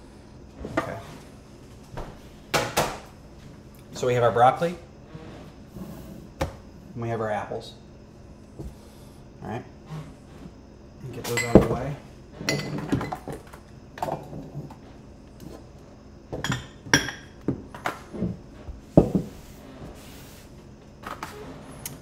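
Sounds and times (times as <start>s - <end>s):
ceramic dishes knocking on wood: 16.3s - 17.6s.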